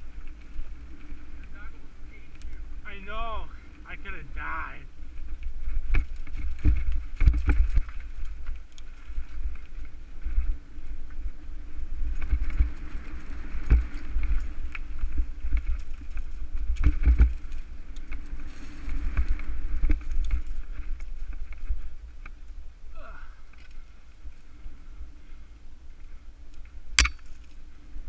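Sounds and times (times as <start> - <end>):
bike knocks and rattles: 5.9 - 8.2.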